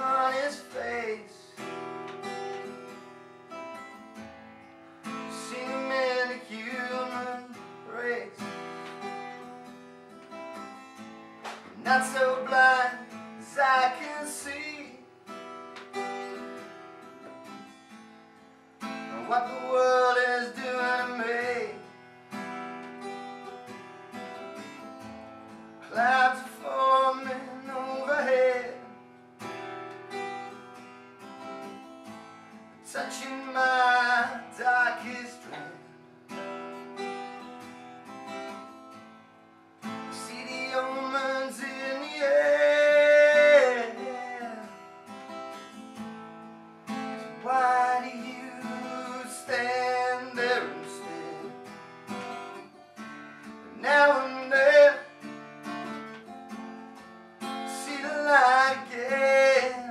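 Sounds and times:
man singing: 0.0 - 1.6, 5.2 - 8.5, 11.7 - 15.1, 19.1 - 21.9, 25.8 - 29.0, 32.8 - 35.9, 40.0 - 44.8, 47.3 - 51.7, 53.6 - 55.2, 57.6 - 59.9
strummed acoustic guitar: 0.0 - 59.9.

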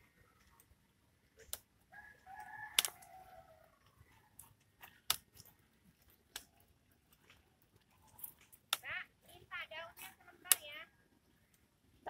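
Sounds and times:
rooster crowing: 1.9 - 3.8
plant stems snapping: 2.7 - 3.1, 4.4 - 6.6, 8.1 - 8.8, 10.0 - 10.6.

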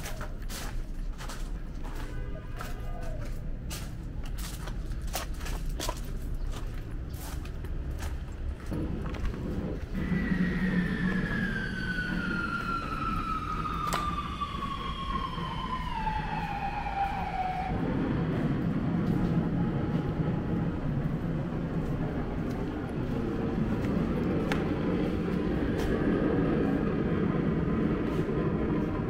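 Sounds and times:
steady low rumble: 0.0 - 29.0
whistle gliding down in pitch: 9.9 - 18.2.

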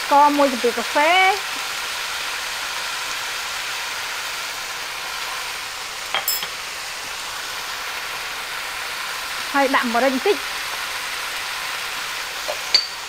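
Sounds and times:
food sizzling in a wok: 0.0 - 13.0.

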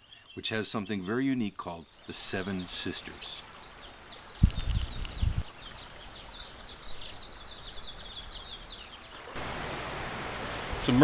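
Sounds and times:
small bird chirping: 0.0 - 9.4
steady rushing hiss: 8.3 - 11.0.

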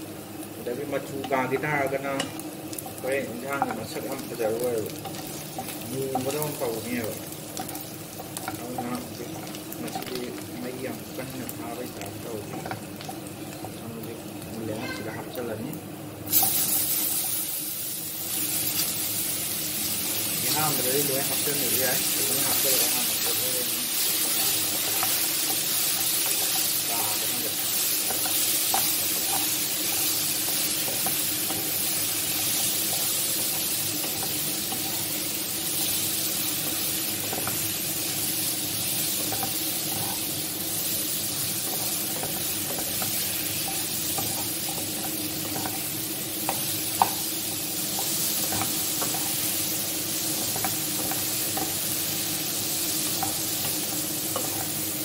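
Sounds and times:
vegetables sizzling in oil: 0.0 - 55.0
wooden spatula scraping a wok: 20.7 - 40.4.

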